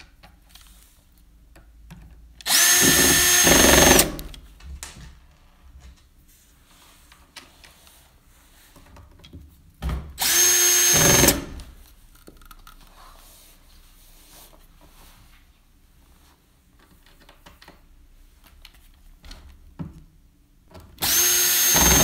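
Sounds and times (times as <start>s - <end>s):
cordless drill motor whine: 2.5s - 4.3s, 10.2s - 11.6s, 21.0s - 22.0s.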